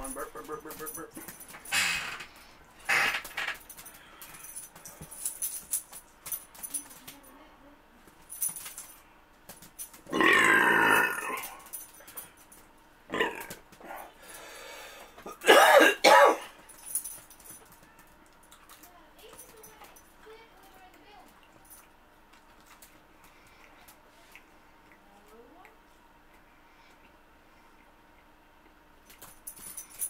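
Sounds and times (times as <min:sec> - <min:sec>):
man belching loudly: 0:10.1 - 0:11.5, 0:13.1 - 0:13.6.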